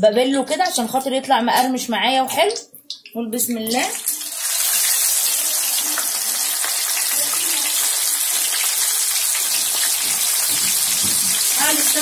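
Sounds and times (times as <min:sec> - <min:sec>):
fish sizzling in frying oil: 0:03.7 - 0:12.0.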